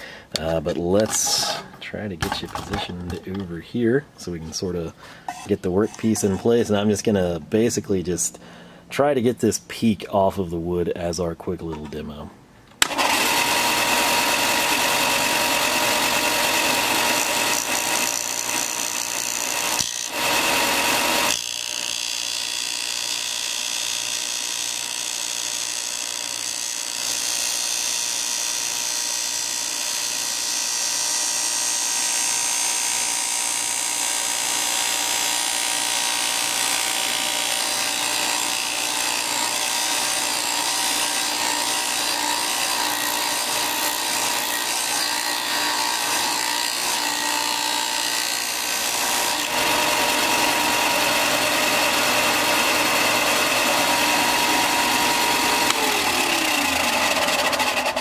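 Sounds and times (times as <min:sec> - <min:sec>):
wood rasping on abrasive: 0:05.3 - 0:06.8, 0:13.0 - 0:58.0
sander motor hum: 0:12.8 - 0:58.0.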